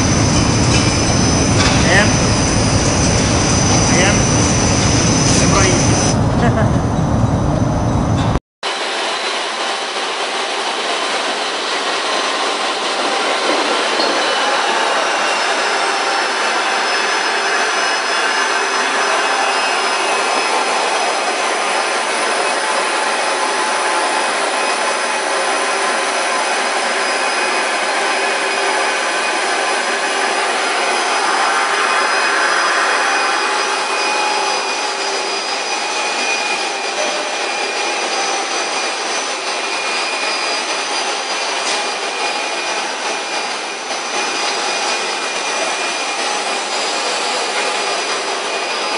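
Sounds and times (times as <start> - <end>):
machinery humming with whining tones: 0.0 - 48.9.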